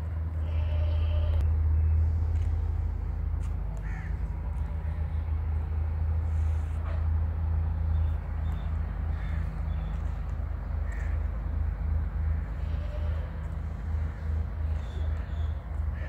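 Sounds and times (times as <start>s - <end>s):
steady low drone: 0.0s - 16.0s
faint bird calls: 7.9s - 10.2s, 10.8s - 11.3s, 13.9s - 16.0s.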